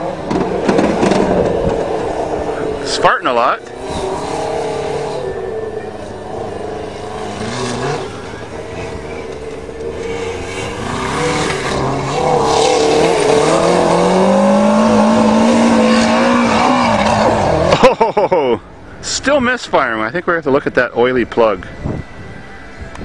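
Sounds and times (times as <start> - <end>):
buggy engine misfiring: 3.3 - 18.6.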